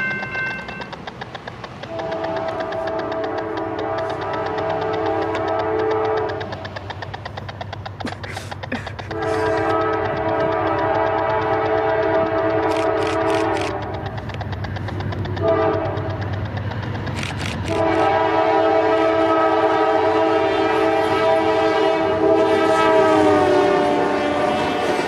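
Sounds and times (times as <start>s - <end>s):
low rumble of train: 0.0s - 25.0s
locomotive air horn blasts: 1.9s - 6.5s, 9.1s - 13.9s, 15.4s - 16.1s, 17.7s - 25.0s.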